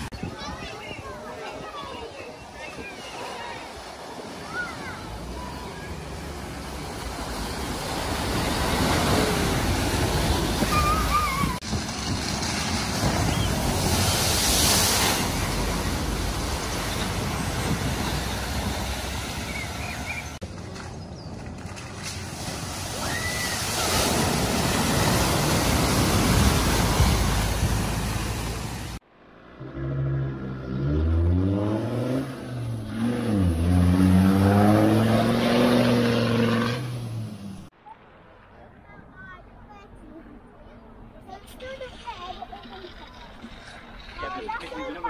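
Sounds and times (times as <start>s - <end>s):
water splashing around wheels: 0.0s - 38.5s, 41.0s - 45.0s
car engines running: 3.6s - 37.7s.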